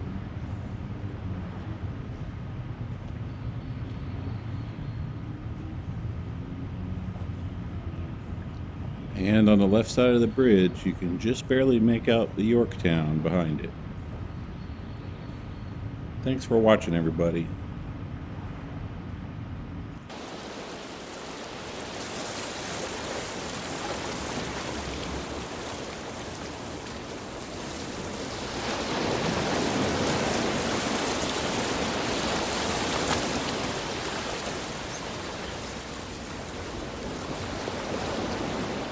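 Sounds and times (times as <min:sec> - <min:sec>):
ocean waves breaking: 0:20.1 - 0:38.9.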